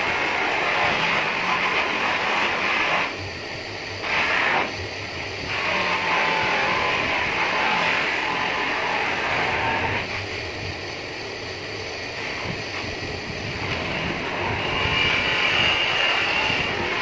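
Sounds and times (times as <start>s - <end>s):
high whine of polishing wheel: 0.0s - 17.0s
buffing wheel grinding metal: 13.6s - 17.0s.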